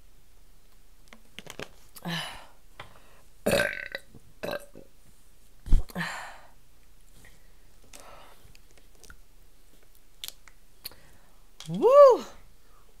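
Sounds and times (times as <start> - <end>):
woman burping: 3.5 - 4.9.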